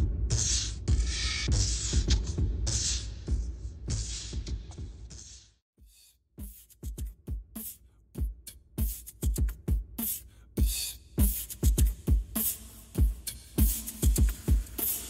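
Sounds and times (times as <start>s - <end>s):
electronic beat music: 8.8s - 15.0s.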